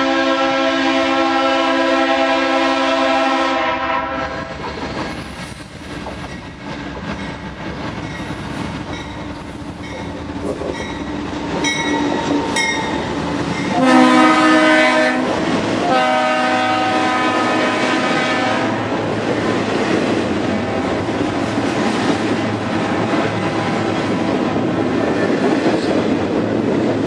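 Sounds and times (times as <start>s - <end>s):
locomotive air horn: 0.0s - 4.5s, 13.7s - 18.9s
train running noise: 0.0s - 27.0s.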